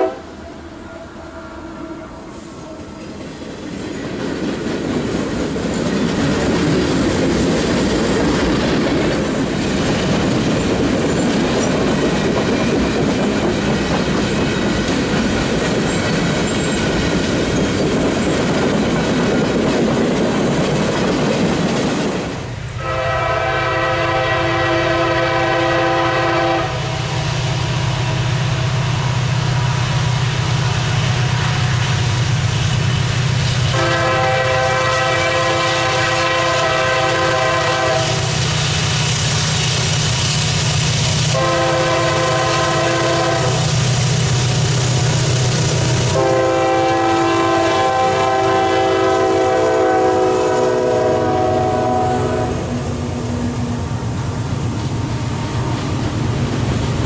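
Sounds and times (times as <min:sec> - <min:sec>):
locomotive air horn: 0:00.0 - 0:03.0, 0:22.8 - 0:27.4, 0:33.7 - 0:38.4, 0:41.3 - 0:43.8, 0:46.1 - 0:52.9
train wheels clattering on rails: 0:02.8 - 0:22.7, 0:30.0 - 0:51.1, 0:52.7 - 0:57.0.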